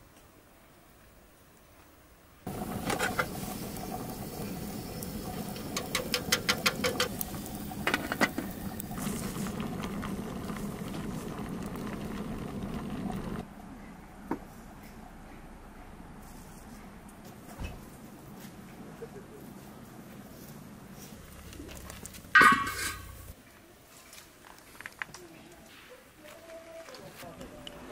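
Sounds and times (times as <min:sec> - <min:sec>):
fire pops and crackles: 0:02.5 - 0:13.4, 0:21.0 - 0:23.4
water boiling in kettle: 0:02.5 - 0:13.4.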